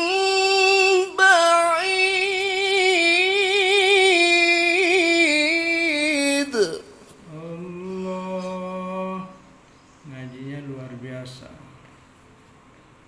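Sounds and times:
man reciting melodically: 0:00.0 - 0:11.8.

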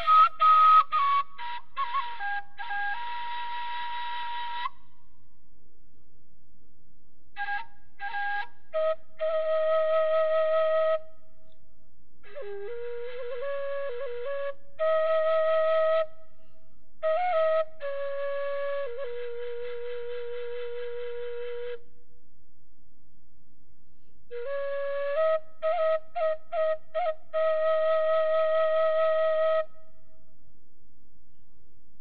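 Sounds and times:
solo flute melody: 0:00.0 - 0:05.2, 0:07.3 - 0:11.5, 0:12.2 - 0:21.9, 0:24.3 - 0:30.3.

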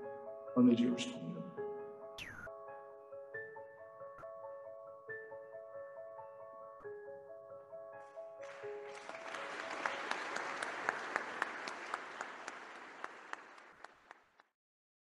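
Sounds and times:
audience applauding: 0:08.4 - 0:14.5.

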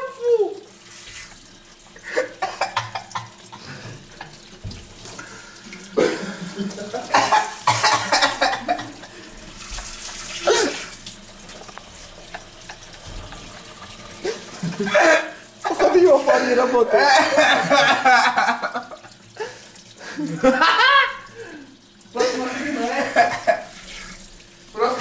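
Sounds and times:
man coughing and spluttering: 0:01.9 - 0:04.5, 0:05.8 - 0:09.4, 0:10.1 - 0:11.0, 0:14.1 - 0:24.2
tap running into steel sink: 0:02.8 - 0:05.1.

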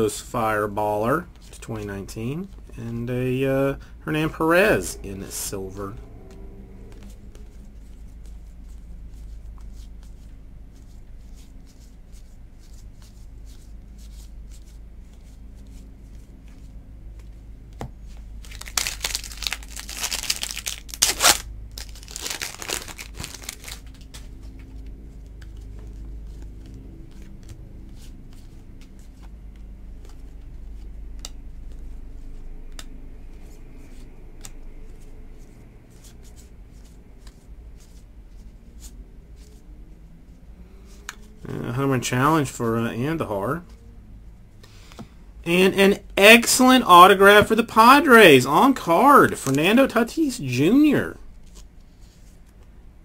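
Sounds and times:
wrapper tearing and crinkling: 0:18.4 - 0:24.2.

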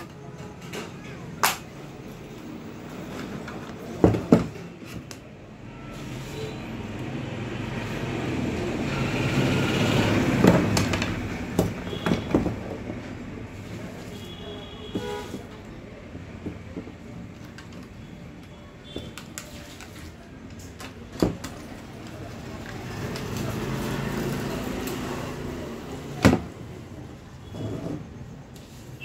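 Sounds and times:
clicks and knocks of plastic parts: 0:14.9 - 0:23.6.

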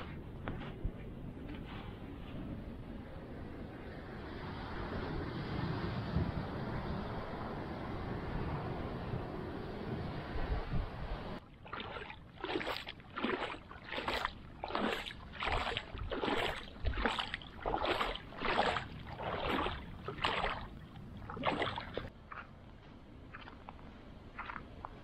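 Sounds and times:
wind: 0:00.0 - 0:25.0
feet splashing through shallow water: 0:11.4 - 0:22.6, 0:23.2 - 0:25.0.

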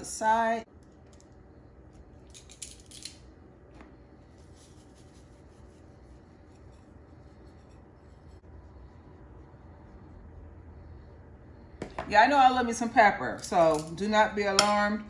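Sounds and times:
low steady hum: 0:00.0 - 0:15.0
spice shaker shaking: 0:04.3 - 0:06.1.

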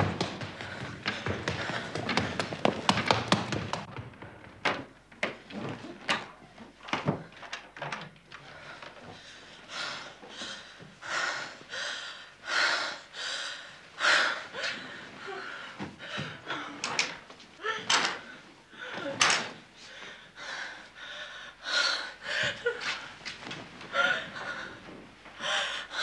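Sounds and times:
woman panting heavily: 0:00.1 - 0:03.0, 0:08.4 - 0:23.2, 0:23.9 - 0:26.0.

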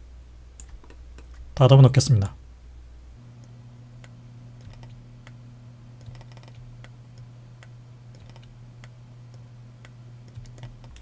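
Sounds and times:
low electrical hum: 0:00.0 - 0:11.0
keyboard and mouse clicks: 0:00.6 - 0:01.5, 0:04.0 - 0:05.4, 0:06.0 - 0:07.3, 0:08.1 - 0:11.0.

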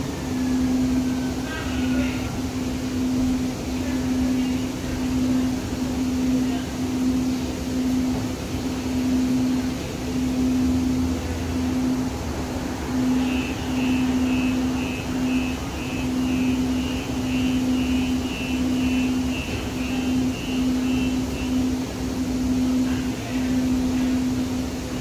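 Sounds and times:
low hum: 0:00.0 - 0:25.0
train running noise: 0:00.0 - 0:25.0
high electronic beep: 0:12.9 - 0:22.4.

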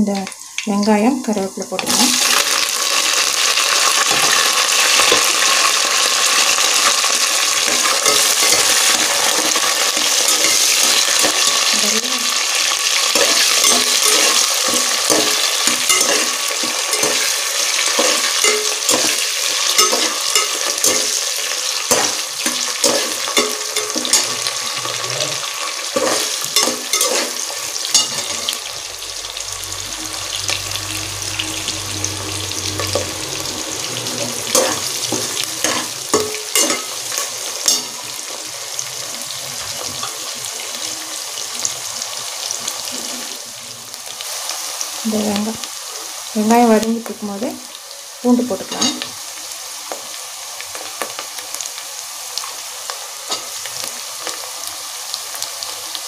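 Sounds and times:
onions sizzling in hot oil: 0:00.0 - 0:56.0
ladle clicking and scraping pot: 0:13.2 - 0:21.2, 0:21.9 - 0:28.6, 0:34.5 - 0:37.9.

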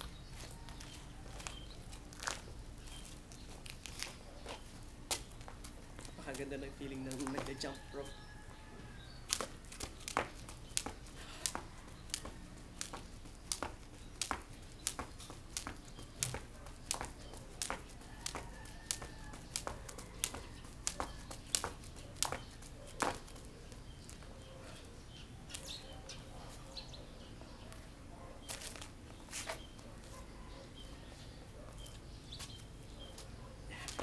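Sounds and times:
jump rope slapping concrete: 0:05.0 - 0:07.7, 0:09.2 - 0:24.3.

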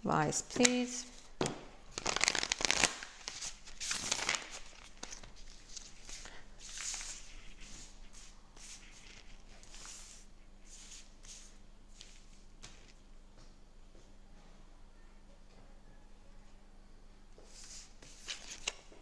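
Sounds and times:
cards being riffle-shuffled: 0:01.9 - 0:10.1.

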